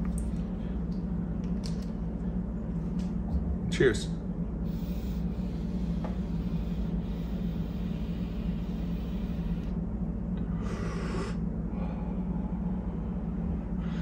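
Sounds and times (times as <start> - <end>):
steady low hum: 0.0 - 14.0
breathy vape exhale: 10.6 - 12.3.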